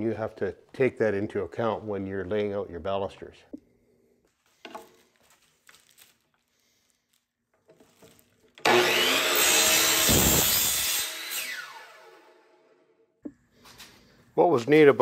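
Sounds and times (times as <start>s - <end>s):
electric power saw whining: 8.6s - 12.8s.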